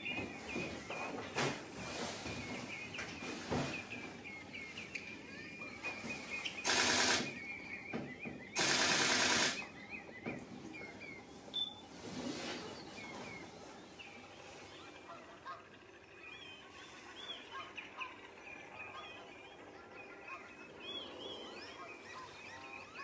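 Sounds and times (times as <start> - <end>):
bird calling high clipped notes: 0.0 - 13.5
loud buzzing rattle: 6.6 - 7.4, 8.6 - 9.7.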